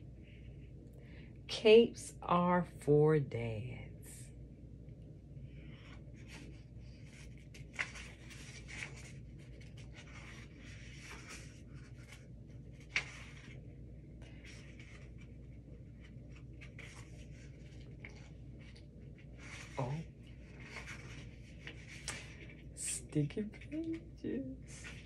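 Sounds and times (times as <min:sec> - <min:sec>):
paper pages rustling: 0:05.5 - 0:24.1, 0:24.7 - 0:25.0.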